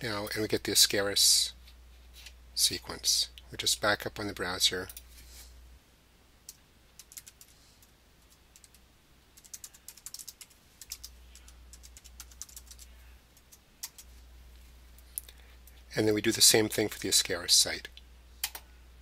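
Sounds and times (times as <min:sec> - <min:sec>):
typing on a computer keyboard: 0:07.0 - 0:07.5, 0:08.2 - 0:08.8, 0:09.4 - 0:14.1, 0:18.4 - 0:18.6.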